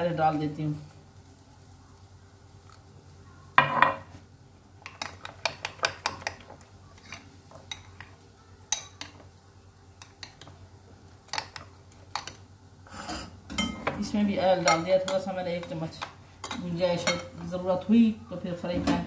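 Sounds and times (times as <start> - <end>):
dishes clattering: 3.6 - 4.1, 13.1 - 14.1
spoon clinking dishes: 13.5 - 14.0.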